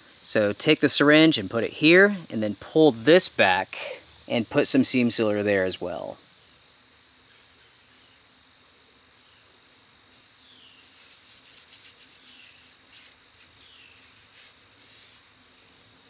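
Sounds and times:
insects chirring: 0:00.0 - 0:16.0
faint rustles and clicks: 0:09.7 - 0:16.0.

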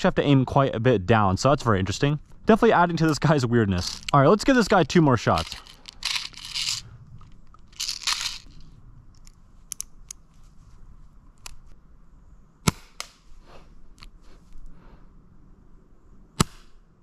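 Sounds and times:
airsoft pistol shot: 0:16.4 - 0:16.8.

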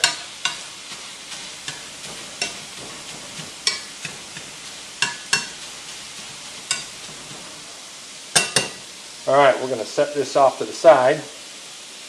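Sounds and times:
metal masher clacking on pan: 0:00.0 - 0:00.7, 0:01.3 - 0:07.5, 0:08.4 - 0:08.8
meat sizzling in a skillet: 0:00.0 - 0:12.0.

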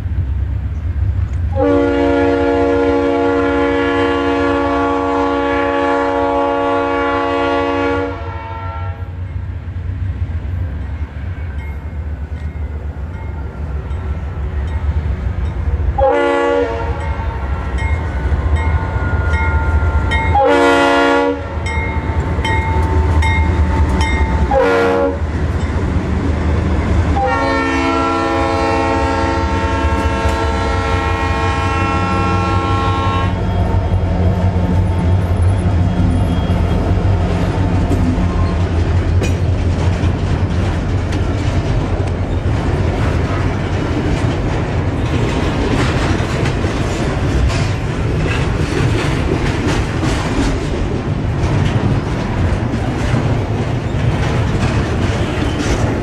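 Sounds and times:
low rumble of passing train: 0:00.0 - 0:56.0
locomotive air horn blasts: 0:01.5 - 0:09.2, 0:16.0 - 0:17.8, 0:18.8 - 0:21.8, 0:24.4 - 0:25.2, 0:27.2 - 0:33.5.

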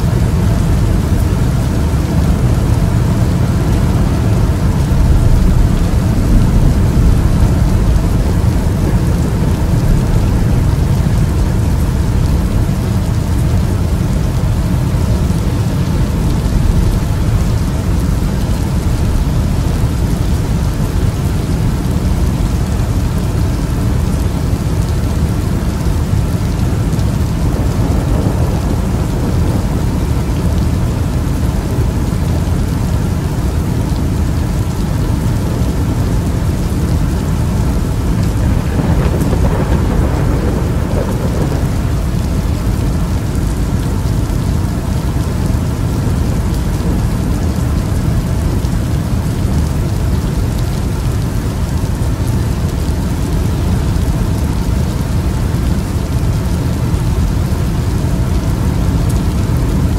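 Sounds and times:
deep thunder rumble: 0:00.0 - 0:32.9, 0:36.2 - 0:47.6
steady rain: 0:00.0 - 0:59.9.

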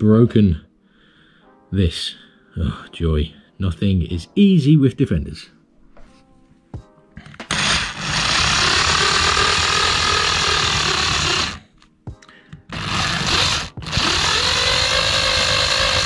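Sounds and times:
cordless drill grinding: 0:07.2 - 0:11.7, 0:12.7 - 0:16.0.

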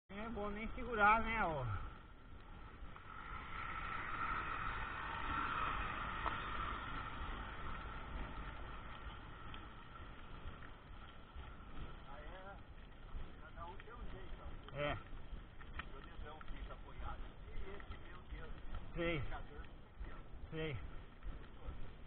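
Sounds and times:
bike tyres rolling on dirt: 0:00.1 - 0:22.0
bus passing: 0:03.0 - 0:11.1.

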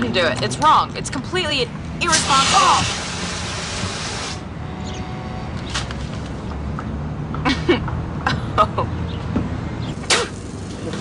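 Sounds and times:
fire extinguisher hissing: 0:02.1 - 0:04.4.

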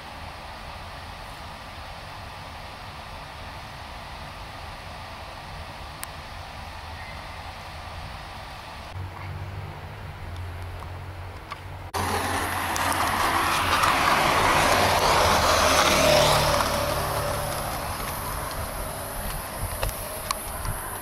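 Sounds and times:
vehicle passing by: 0:07.8 - 0:21.0.

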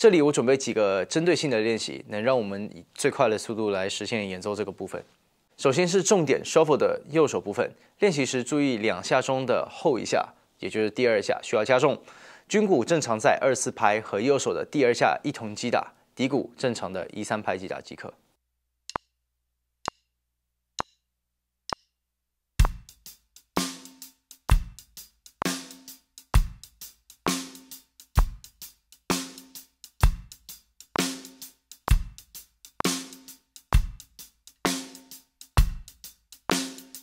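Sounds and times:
drum kit playing shuffle groove: 0:22.6 - 0:37.0.

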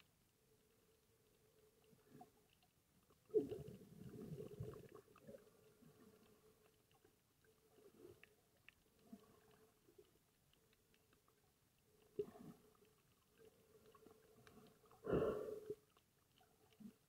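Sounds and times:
faint steady hum: 0:00.0 - 0:17.0
faint underwater clicks: 0:00.0 - 0:17.0
underwater rumbling and knocking: 0:03.0 - 0:09.7.

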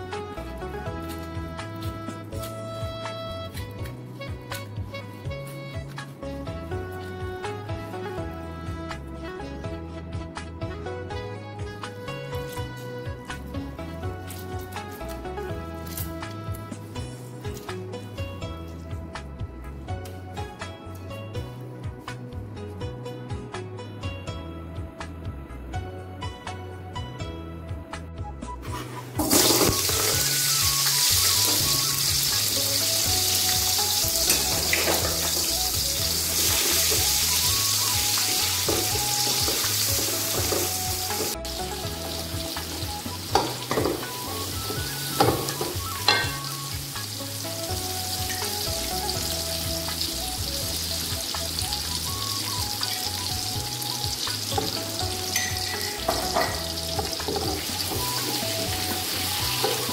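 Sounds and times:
onions sizzling in hot oil: 0:29.1 - 0:59.9.

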